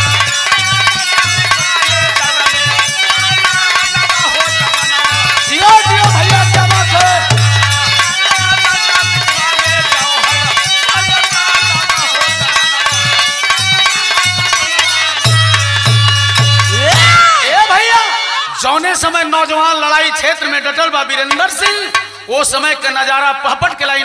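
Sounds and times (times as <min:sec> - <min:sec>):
folk music instrumental: 0:00.0 - 0:19.0.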